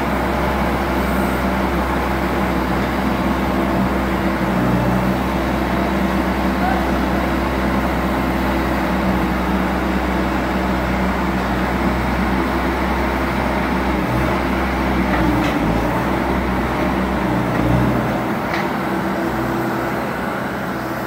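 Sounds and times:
loader diesel engine running: 0.0s - 21.0s.

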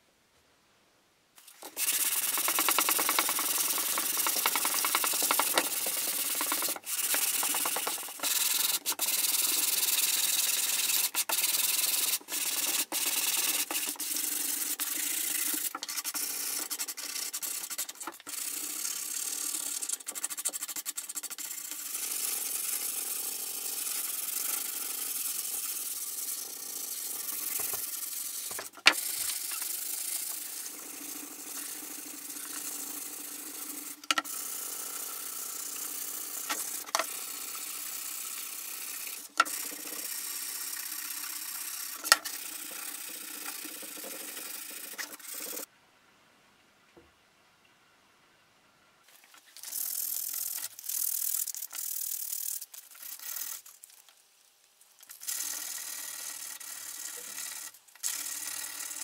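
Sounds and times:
sandpaper rubbing wood: 1.4s - 45.7s.

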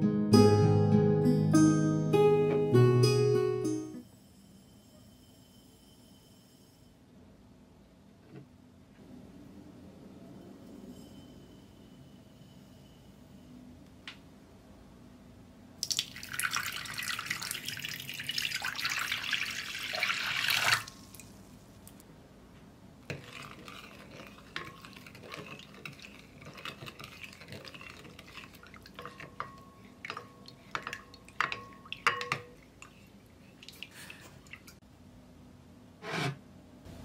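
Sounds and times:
water pouring into glass bowl: 15.8s - 21.3s, 23.1s - 32.9s
spoon stirring in glass bowl: 23.1s - 34.8s.

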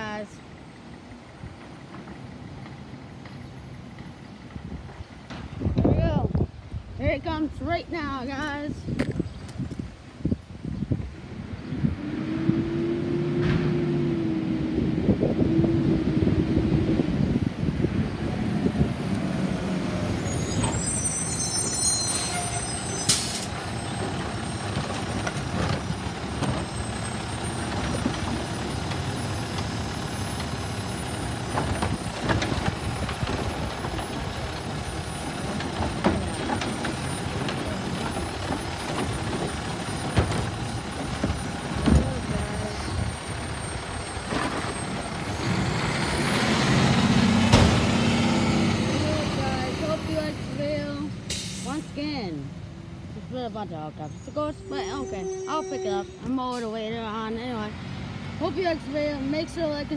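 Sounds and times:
diesel truck engine running: 11.1s - 21.4s, 22.6s - 59.9s
air brakes hissing: 20.4s - 23.6s, 51.3s - 51.9s.

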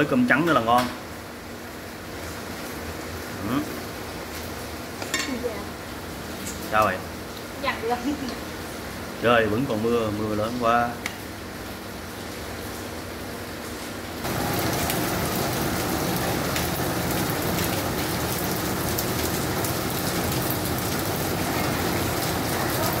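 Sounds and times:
heavy rain hissing: 0.0s - 23.0s.

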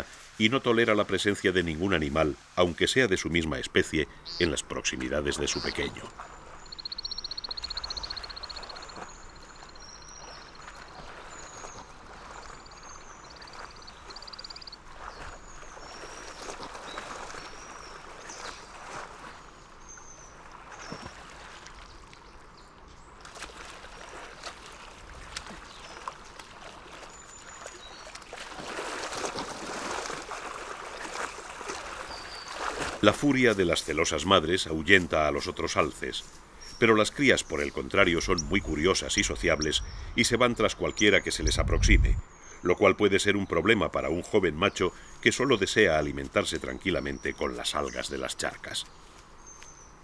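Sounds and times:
small birds chirping: 3.4s - 23.3s, 24.0s - 28.4s, 30.9s - 50.0s
moose splashing through water: 4.3s - 22.5s, 23.1s - 35.9s.

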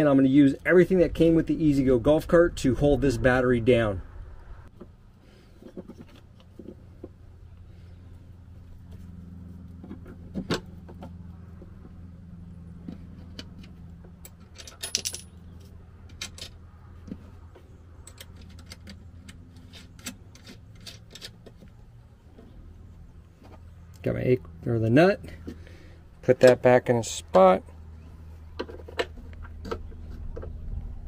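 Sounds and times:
steady low hum: 0.0s - 31.0s
metal clinks and rattles: 14.3s - 16.6s.

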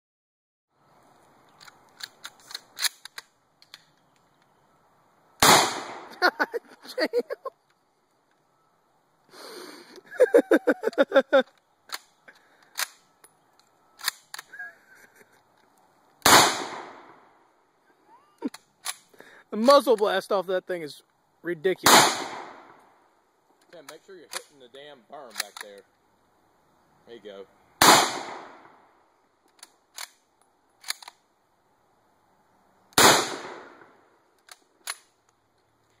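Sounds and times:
sharp rifle clicks: 1.5s - 4.5s, 11.4s - 14.6s, 18.4s - 19.8s, 23.8s - 24.5s, 25.3s - 25.9s, 29.4s - 31.3s, 32.9s - 35.4s
rifle bolt clicks: 1.6s - 4.3s, 13.6s - 14.5s, 25.3s - 25.8s, 29.5s - 30.2s, 30.8s - 31.2s
rifle shot with echo: 5.4s - 6.1s, 16.2s - 17.2s, 21.8s - 22.8s, 27.8s - 28.8s, 33.0s - 34.0s.

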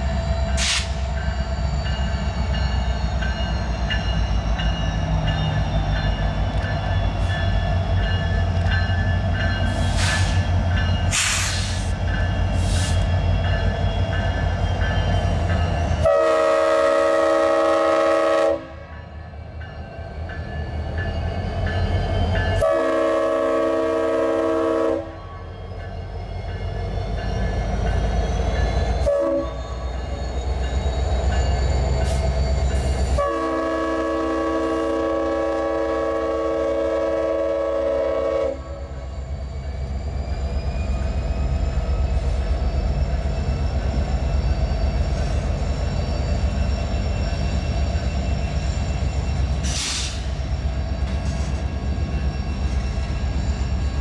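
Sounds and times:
diesel locomotive engine drone: 0.0s - 54.0s
train horn blasts: 16.0s - 18.9s, 22.6s - 25.2s, 29.0s - 29.6s, 33.1s - 38.9s.

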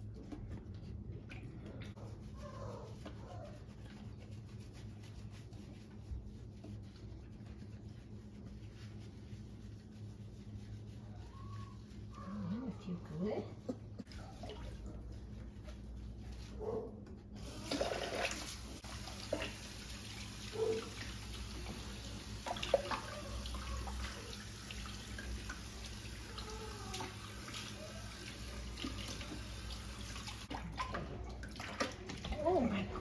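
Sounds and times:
faucet sprayer running water: 17.4s - 30.5s.

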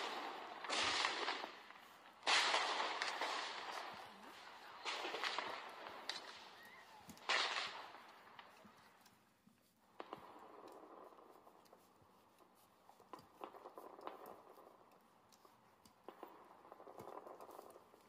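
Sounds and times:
fireworks bangs with crackling: 0.0s - 9.1s, 9.9s - 11.6s, 12.9s - 14.8s, 15.4s - 18.0s.

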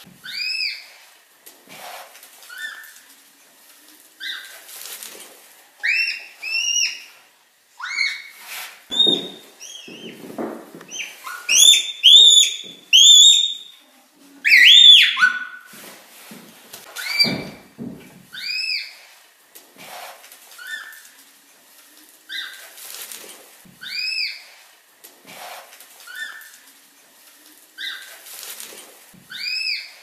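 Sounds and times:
red panda squeaking: 7.8s - 8.3s, 10.9s - 13.7s, 14.5s - 15.6s, 29.3s - 30.0s.

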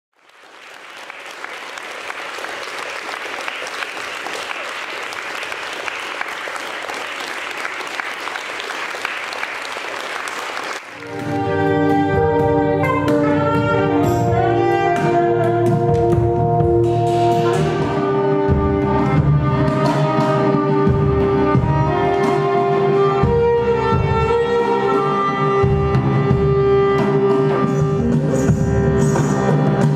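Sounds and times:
audience applause: 0.1s - 11.6s.

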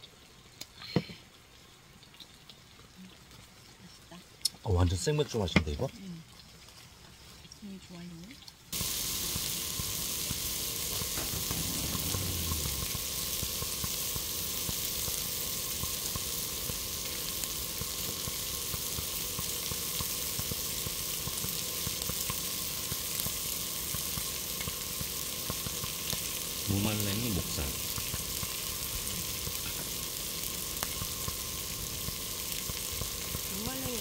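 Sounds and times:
meat sizzling on a grill: 0.0s - 34.0s.

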